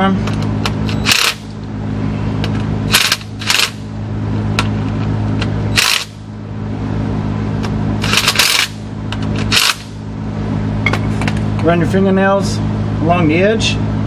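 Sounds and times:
steady low hum: 0.0s - 14.0s
cordless ratchet bursts: 0.9s - 1.5s, 2.9s - 3.8s, 5.8s - 6.2s, 8.0s - 8.8s, 9.4s - 9.9s.

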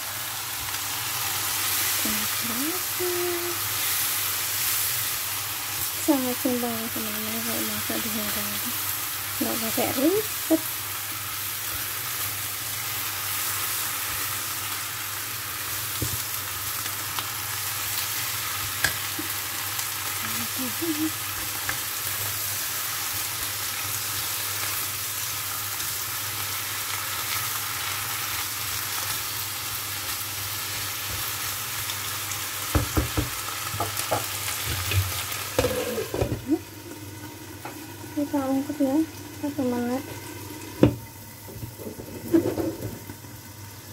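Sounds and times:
vegetables sizzling in a wok: 0.0s - 43.9s
spatula knocking against pan: 32.7s - 34.3s.

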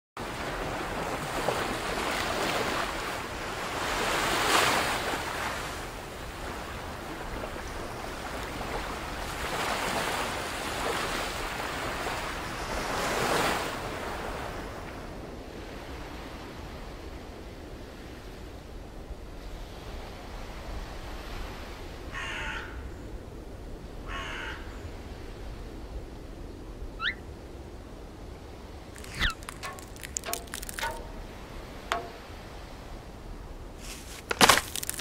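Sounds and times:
sea waves breaking on shore: 0.2s - 18.6s.

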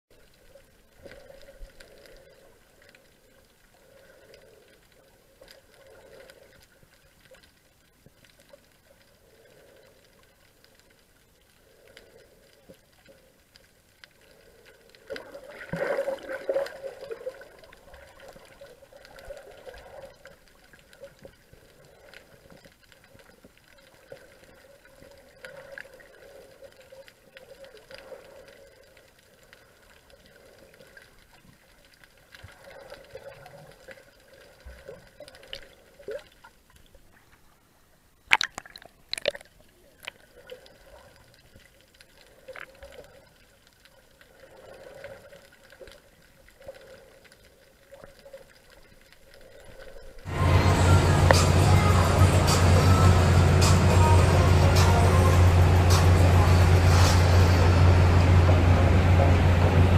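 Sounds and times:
muffled underwater sloshing: 0.1s - 59.9s
faint clicks: 0.2s - 37.5s.

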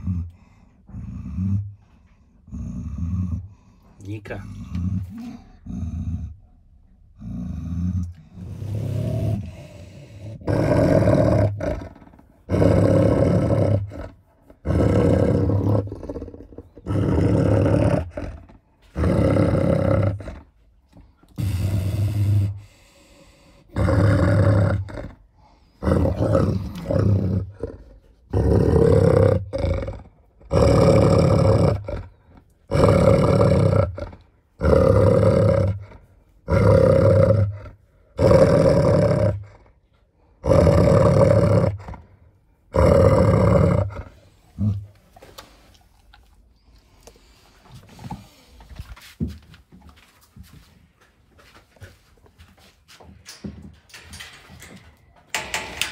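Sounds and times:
dog growling deeply: 0.0s - 20.6s, 21.3s - 45.0s.

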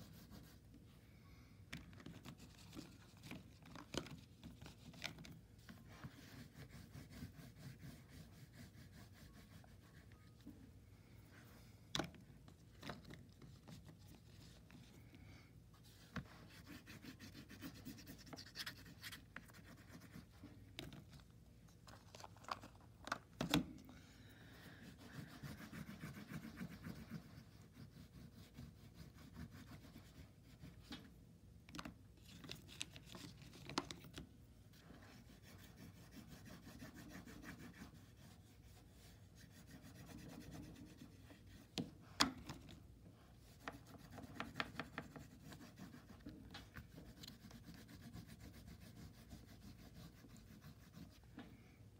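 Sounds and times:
oil pastel scratching on paper: 0.0s - 0.7s, 2.0s - 10.5s, 15.8s - 21.1s, 24.8s - 31.0s, 34.7s - 41.9s, 43.3s - 51.3s.

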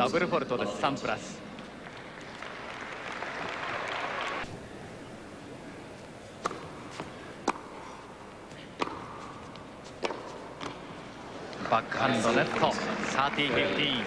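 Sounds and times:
crowd noise: 0.0s - 14.0s
ball bouncing on indoor court: 6.4s - 7.7s, 8.5s - 10.8s
tennis ball struck by rackets: 6.4s - 10.8s.

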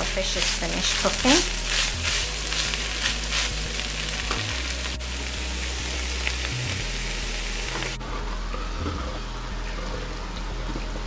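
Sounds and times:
food sizzling in a pan: 0.0s - 8.0s.

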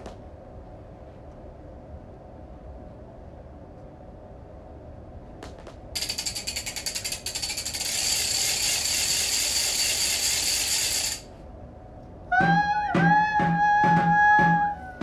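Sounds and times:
ratchet clicking: 6.0s - 11.3s.

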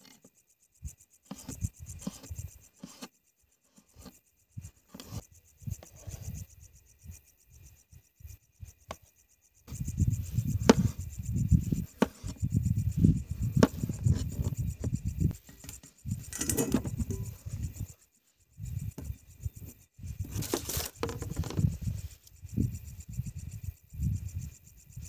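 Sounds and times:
food scraped into steel bowl: 16.3s - 17.4s.

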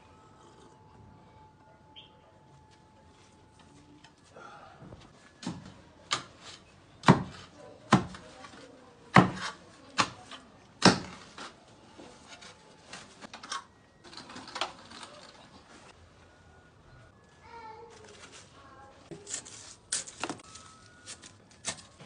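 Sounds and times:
rustling: 17.4s - 22.0s.

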